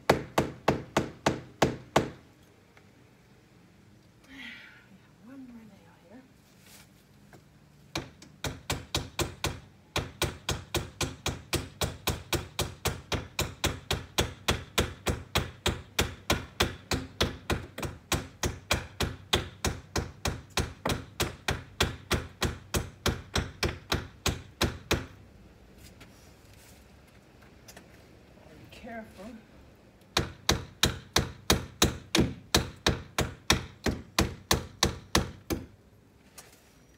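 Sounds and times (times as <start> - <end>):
hammer driving nails: 0.0 - 2.2, 30.1 - 35.7.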